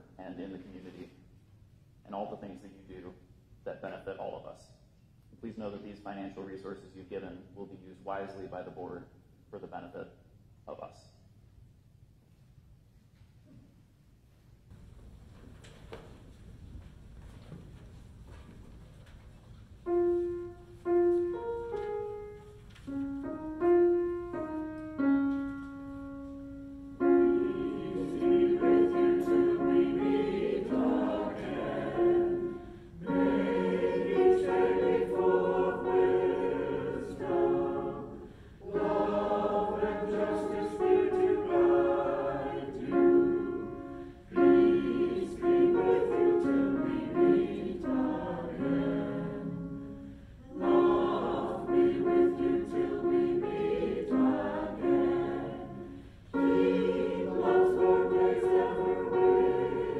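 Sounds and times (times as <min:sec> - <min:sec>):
piano: 0:14.7 - 0:59.9
choir singing in harmony: 0:26.0 - 0:59.9.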